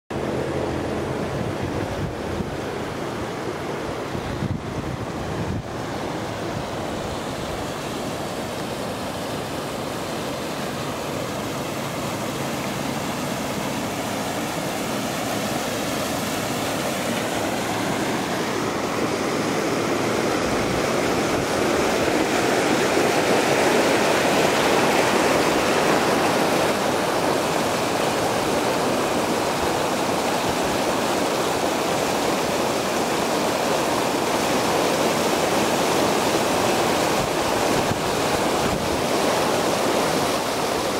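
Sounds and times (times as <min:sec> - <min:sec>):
water rushing over rocks: 0:00.1 - 0:40.9.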